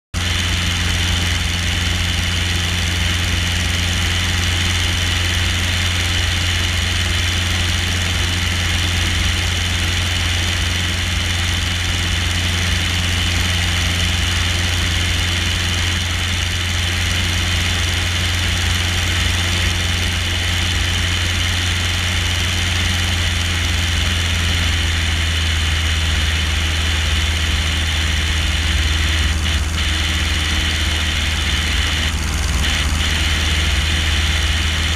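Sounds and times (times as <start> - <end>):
plane engine and propeller droning: 0.2 - 34.9.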